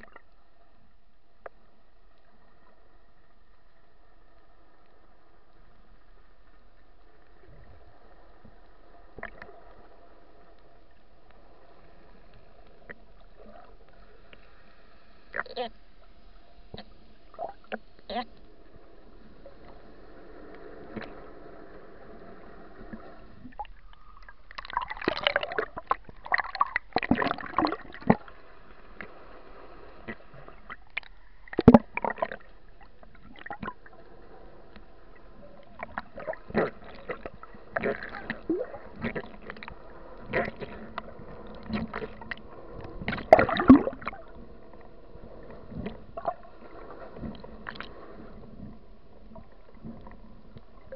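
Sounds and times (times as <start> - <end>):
underwater hum: 0.0 - 50.9
bubbling: 22.8 - 28.3, 30.0 - 33.9, 35.5 - 50.9.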